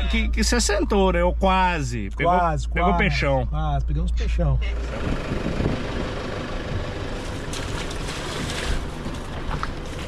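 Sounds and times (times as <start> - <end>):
low rumble: 0.0 - 10.0
wind buffeting microphone: 4.9 - 7.0.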